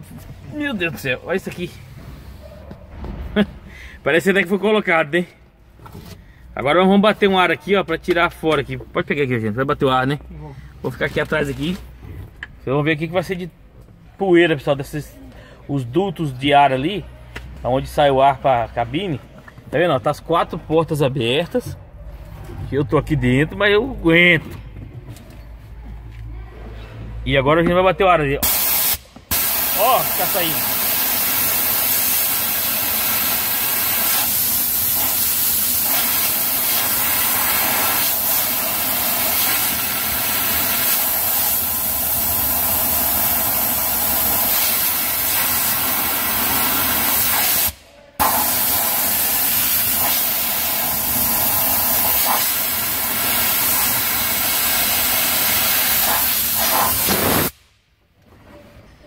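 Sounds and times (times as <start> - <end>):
compressed air blowgun hissing: 28.4 - 57.6.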